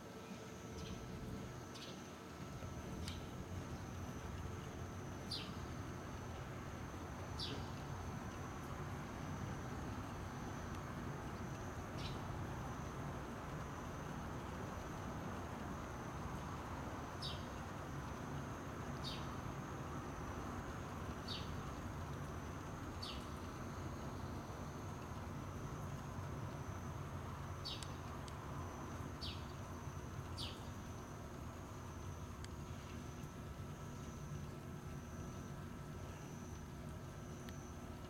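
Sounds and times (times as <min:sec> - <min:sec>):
bird chirping: 0:07.4 - 0:07.7, 0:19.0 - 0:19.3, 0:27.6 - 0:28.0.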